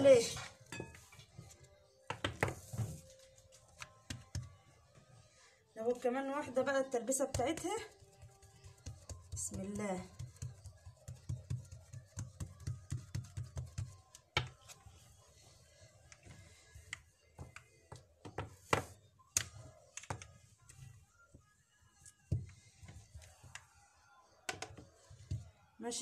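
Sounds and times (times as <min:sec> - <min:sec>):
hands patting dough: 0:01.4 - 0:04.6, 0:07.2 - 0:14.8
rolling pin tapping on table: 0:24.5 - 0:25.4.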